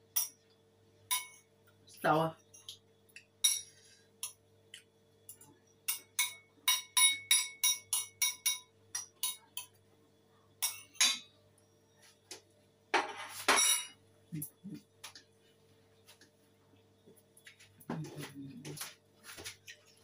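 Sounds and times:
spoon clinking on ceramic bowl: 1.1 - 1.5, 2.5 - 4.4, 5.3 - 9.7.

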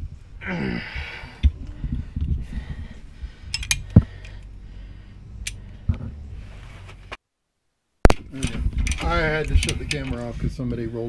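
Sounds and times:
metal tools clinking on bolt: 3.5 - 4.0, 8.4 - 10.3
car stereo bass rumble: 5.3 - 7.1.

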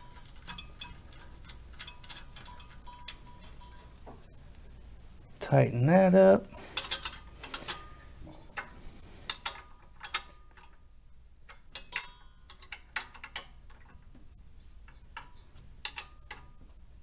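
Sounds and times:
metallic clinks of tool on bracket: 11.5 - 13.8, 15.2 - 16.6.

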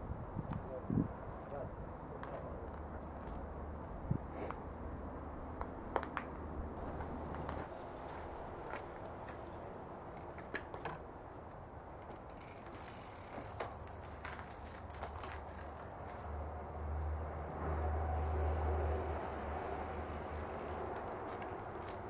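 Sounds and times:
steady low rumble: 0.0 - 9.1
bicycle clicks and rattles: 5.6 - 16.3, 17.8 - 22.0.

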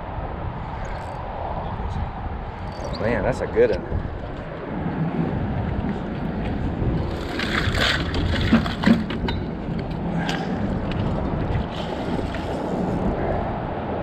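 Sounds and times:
wind noise on microphone: 0.0 - 14.0
crackling scrape: 7.0 - 9.3, 10.2 - 13.3.

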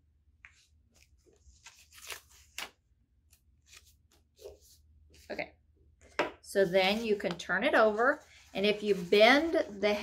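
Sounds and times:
paper rustling and crinkling: 0.9 - 2.8, 6.7 - 10.0.

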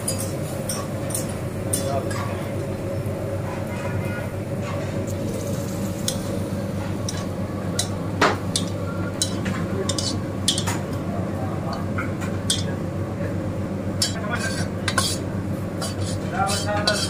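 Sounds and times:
metal spatula scraping wok: 14.0 - 15.2, 15.8 - 17.0.

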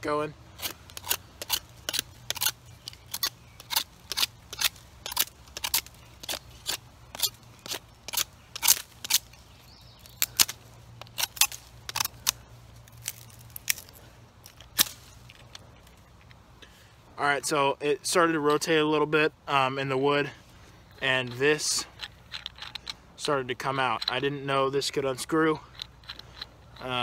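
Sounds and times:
knife carving dry stick: 0.5 - 16.3.

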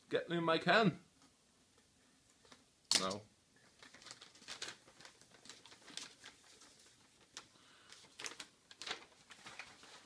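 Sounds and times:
newspaper rustling: 2.5 - 10.0.

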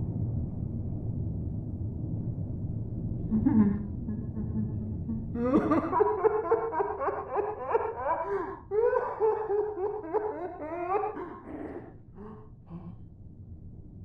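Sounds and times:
cartoon character laughing: 3.3 - 12.4.

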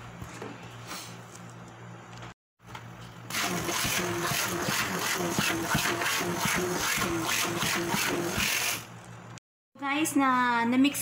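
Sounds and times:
electric hand mixer running: 3.3 - 8.9.

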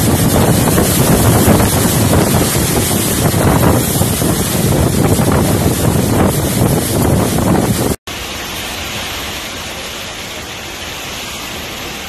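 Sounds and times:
wind buffeting microphone: 0.0 - 8.0
storm wind through trees: 0.0 - 12.0
wind-driven rain: 0.0 - 12.0.

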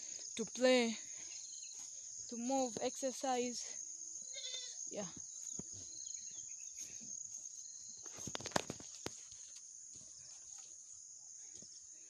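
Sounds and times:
high-pitched insect hiss: 0.0 - 12.0
footsteps on muddy ground: 6.7 - 11.8.

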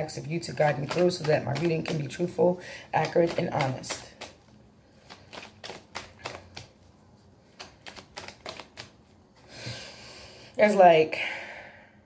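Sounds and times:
cards being shuffled by hand: 0.2 - 9.2.

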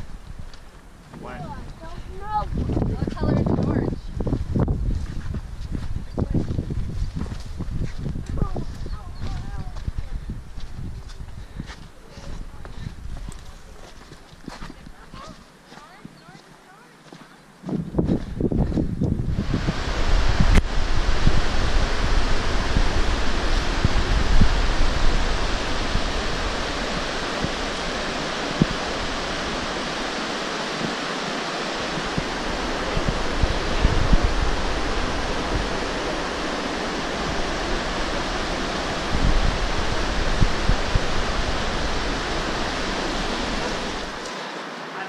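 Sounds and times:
wind rumbling on microphone: 0.0 - 16.5, 17.5 - 44.4
river rushing over rocks: 19.4 - 45.0.

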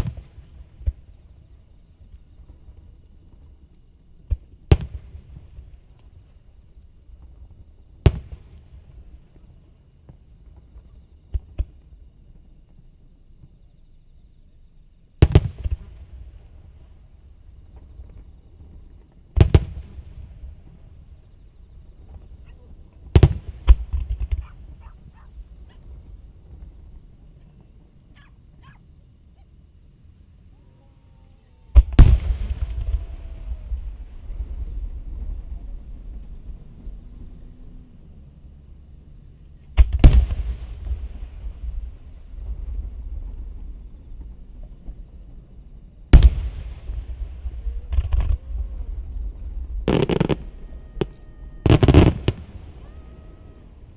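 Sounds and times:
distant firework booms: 0.0 - 1.2, 4.2 - 5.8, 7.2 - 9.5, 15.2 - 17.1, 17.7 - 28.7, 31.7 - 37.5, 39.7 - 53.9
insects trilling: 0.0 - 53.9
firework crackle: 46.2 - 53.0.

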